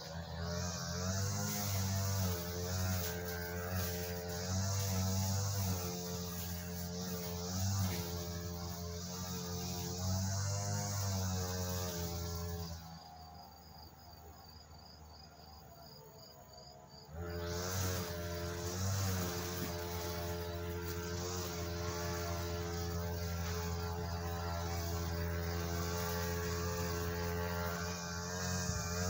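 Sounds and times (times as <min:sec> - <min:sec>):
faint cricket-like chirp: 0:10.5 - 0:29.0
low droning hum: 0:16.9 - 0:29.0.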